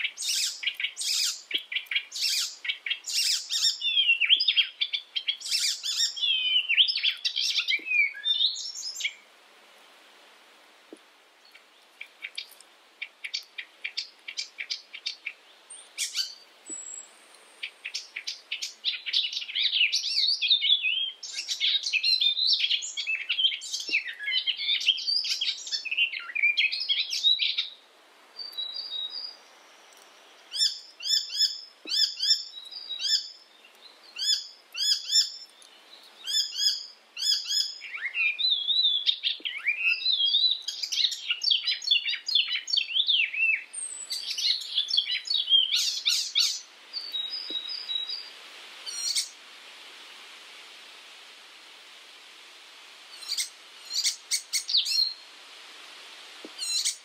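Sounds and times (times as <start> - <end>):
warbler singing: 0.0 - 9.2, 11.4 - 27.8, 28.4 - 48.3, 48.9 - 49.3, 53.2 - 55.2, 56.6 - 57.0.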